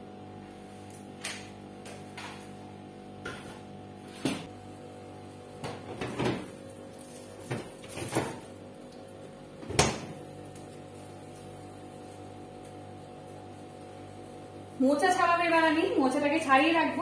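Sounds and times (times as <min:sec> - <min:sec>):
refrigerator knocks and clunks: 0:09.6 - 0:10.2.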